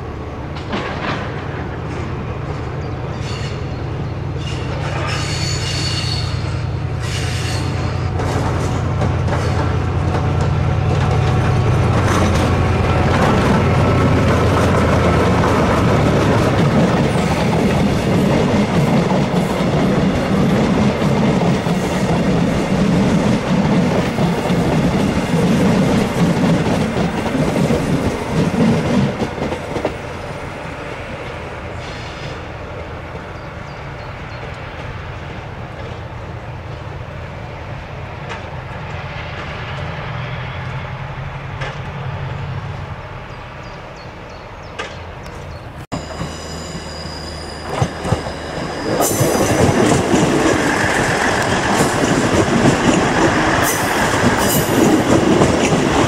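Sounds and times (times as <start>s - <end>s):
diesel locomotive engine: 0.0s - 56.0s
train rumble: 0.0s - 56.0s
coaches clattering over rail joints: 0.5s - 3.7s, 7.8s - 30.1s, 44.6s - 56.0s
another train engine tone: 45.5s - 56.0s.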